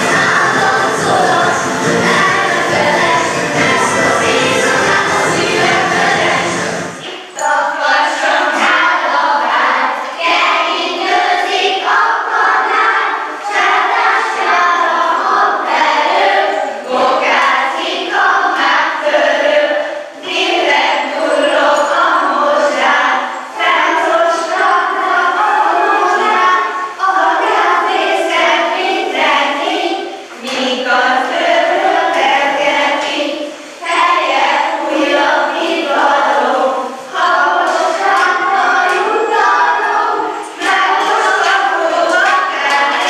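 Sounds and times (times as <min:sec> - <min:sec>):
dance music: 0:00.0 - 0:07.0
young children singing: 0:00.0 - 0:43.0.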